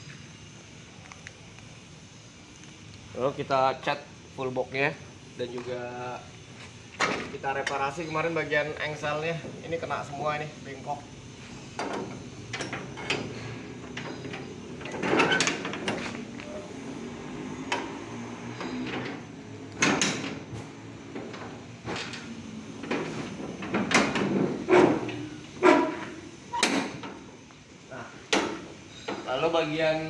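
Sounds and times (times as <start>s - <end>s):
metal cargo doors clanking: 11.7s - 16.7s, 17.6s - 27.3s.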